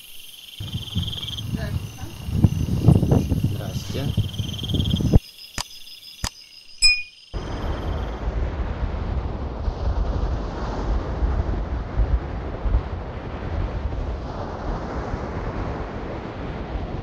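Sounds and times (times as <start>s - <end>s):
wind buffeting microphone: 0.6s - 5.2s, 7.4s - 17.0s
surf breaking on shore: 8.1s - 17.0s.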